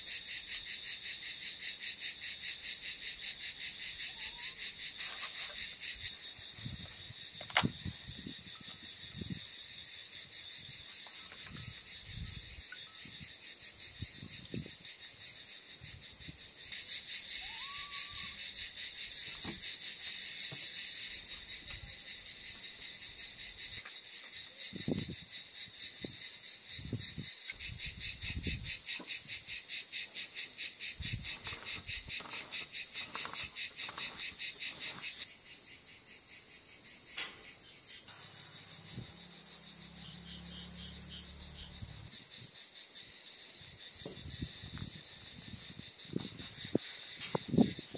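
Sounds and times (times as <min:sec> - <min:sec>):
insects chirring: 0:00.0 - 0:47.9
sharp click: 0:07.4 - 0:07.8, 0:37.1 - 0:37.5.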